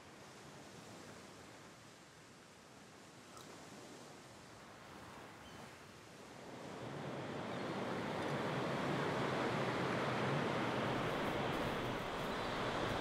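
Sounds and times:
ocean surf washing: 6.2s - 13.0s.

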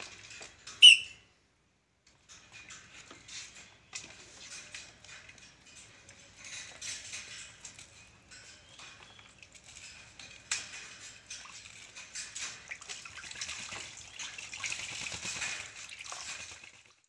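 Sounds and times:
bird splashing in water: 6.6s - 17.0s.

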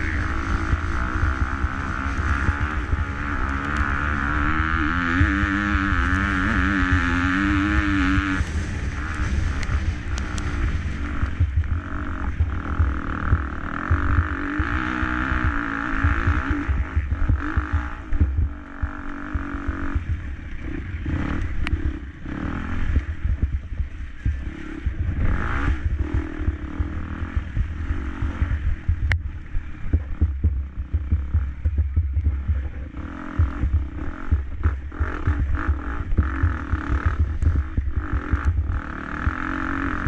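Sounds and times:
motocross bike engine revving: 0.0s - 40.0s
sharp clicks: 8.4s - 11.8s.

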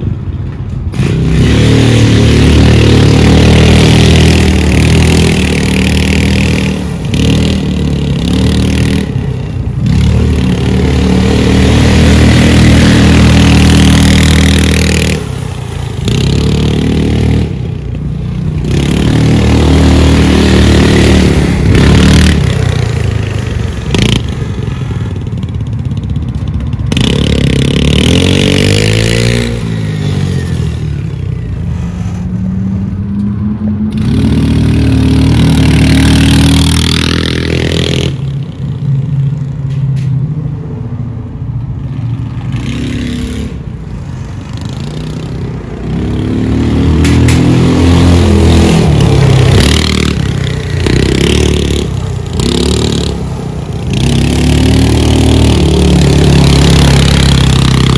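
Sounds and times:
go-kart engine revving: 0.9s - 32.3s, 33.8s - 38.5s, 44.6s - 57.9s.

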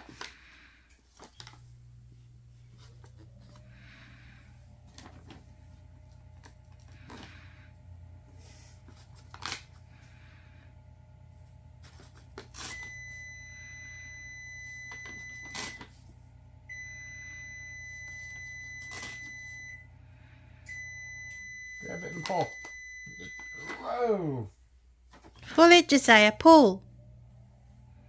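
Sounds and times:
wrapping paper crinkling: 0.0s - 1.7s, 8.8s - 9.8s.

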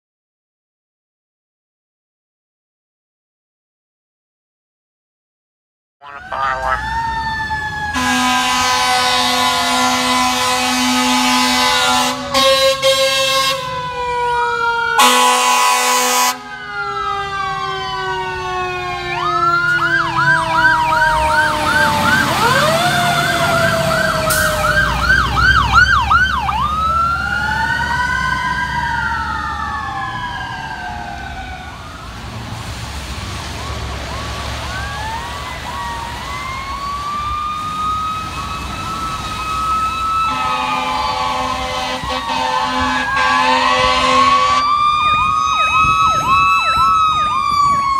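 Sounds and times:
siren winding down: 6.0s - 12.1s, 13.8s - 32.2s, 33.6s - 47.9s
electronic siren yelp and wail: 6.0s - 32.2s, 33.6s - 47.9s
fire truck engine passing: 6.0s - 47.9s
air horn blasts: 8.0s - 13.7s, 15.0s - 16.4s, 40.3s - 44.7s.

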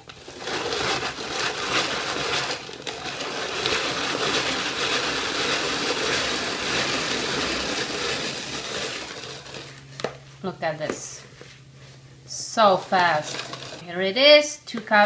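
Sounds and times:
hand-cranked grater grinding nuts: 0.0s - 9.8s, 13.0s - 13.8s.

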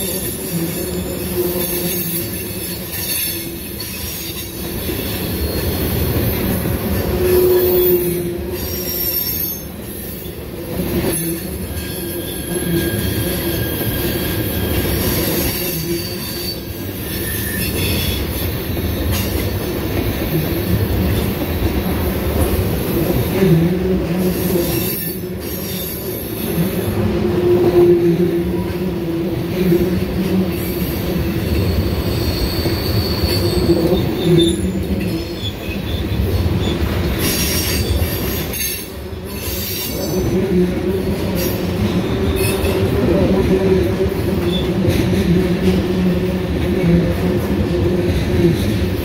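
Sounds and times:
train cars clunking: 0.0s - 49.0s
train wheels rumbling on rails: 0.0s - 49.0s
high-pitched wheel squeals: 7.2s - 10.4s, 11.2s - 19.3s, 31.4s - 40.2s.

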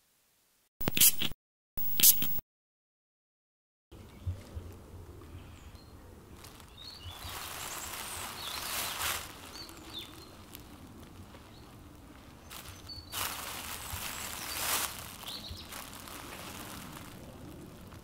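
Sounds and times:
small birds chirping: 4.0s - 17.2s.

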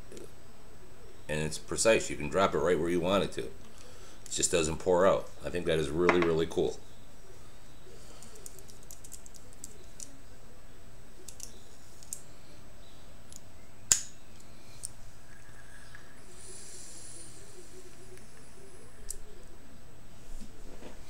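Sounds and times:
soft high hiss of vape: 14.4s - 19.5s.

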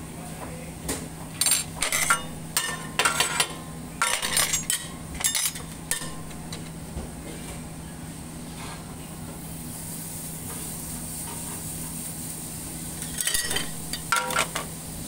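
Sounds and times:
steady low hum: 0.0s - 15.0s
metal spatula clanking on griddle: 1.4s - 6.7s, 13.0s - 14.7s.

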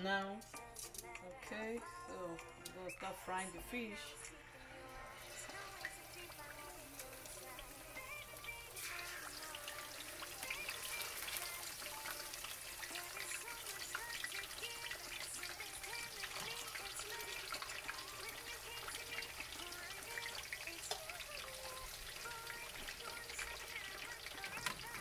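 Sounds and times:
fish sizzling in oil: 3.8s - 25.0s
oil spattering crackle: 5.5s - 25.0s.

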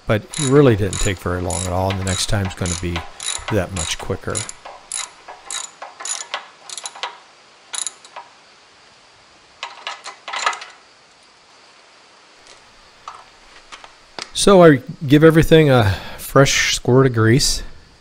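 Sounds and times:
metal wrench clinks: 0.2s - 8.2s
ratchet wrench clicking: 0.2s - 8.2s.

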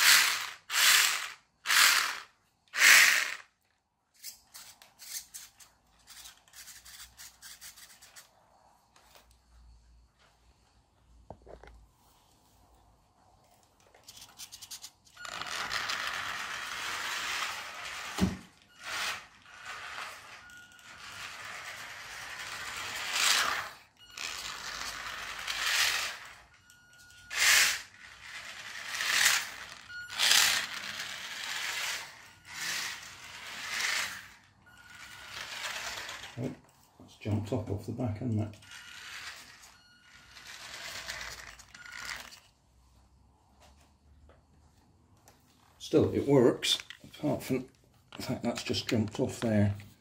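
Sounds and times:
toy car motor whirring: 0.0s - 8.4s, 13.9s - 36.7s, 38.6s - 42.5s
plastic wheels rattling on wooden floor: 15.2s - 20.3s.

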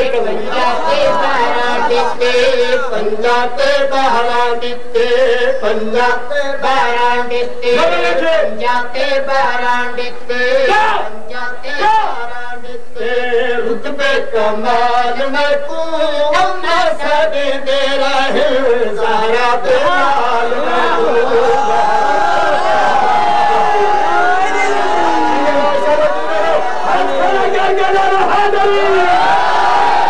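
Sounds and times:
man chanting devotional song: 0.0s - 21.8s.

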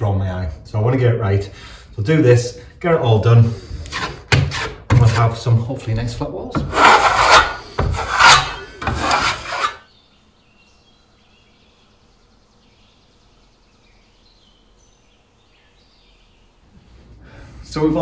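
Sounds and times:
hand sander rubbing plasterboard: 3.5s - 5.5s, 6.6s - 9.9s
faint bird chirps: 9.8s - 16.7s.

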